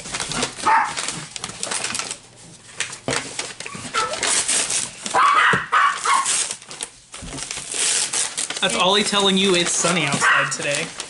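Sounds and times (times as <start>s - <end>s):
packaging rustling: 0.0s - 11.0s
dog barking: 0.6s - 1.0s, 3.9s - 4.2s, 5.1s - 6.4s, 10.2s - 10.6s.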